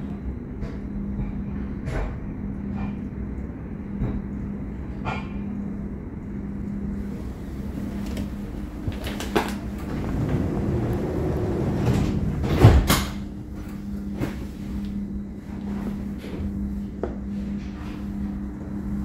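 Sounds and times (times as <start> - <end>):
tram drive hum and rumble: 0.0 - 19.0
heavy clunk: 9.0 - 13.3.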